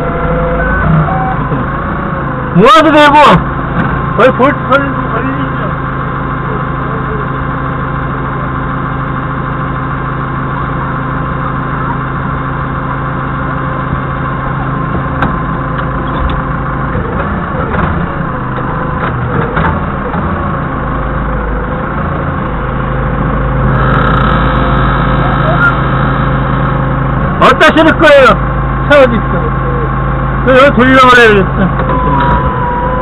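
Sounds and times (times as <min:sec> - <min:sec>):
forklift engine idling: 0:00.0 - 0:33.0.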